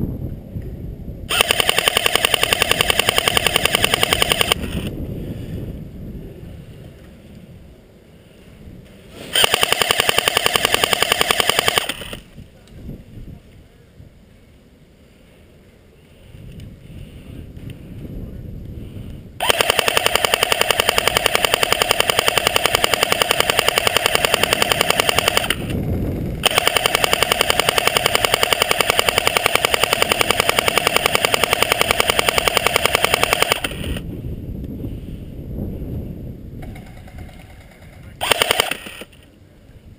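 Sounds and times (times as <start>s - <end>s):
airsoft gun firing full auto: 1.3s - 4.9s, 9.3s - 12.3s, 19.4s - 25.8s, 26.4s - 34.0s, 36.6s - 39.1s.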